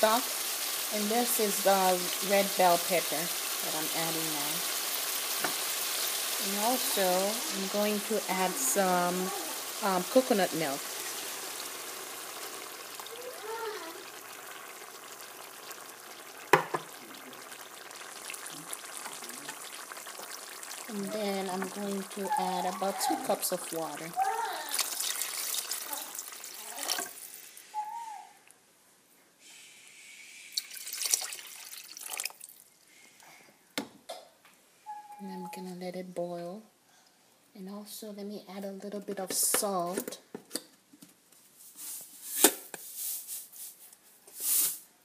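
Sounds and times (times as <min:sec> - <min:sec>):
faint sizzle: 0:00.0 - 0:28.2
liquid pouring and splashing: 0:09.6 - 0:27.5, 0:30.6 - 0:32.7.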